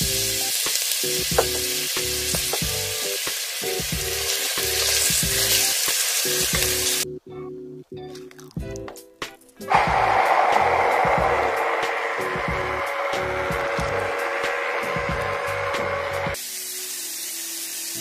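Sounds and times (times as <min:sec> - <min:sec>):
onions sizzling in hot oil: 0:00.0 - 0:07.0, 0:16.4 - 0:18.0.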